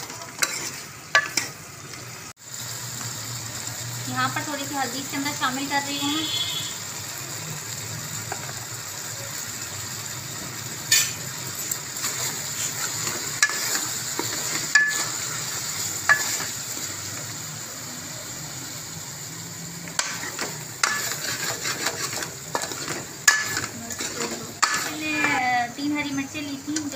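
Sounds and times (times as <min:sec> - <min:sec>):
food sizzling in oil: 0:00.0 - 0:26.9
spoon scraping metal pot: 0:00.4 - 0:01.5, 0:20.0 - 0:25.4.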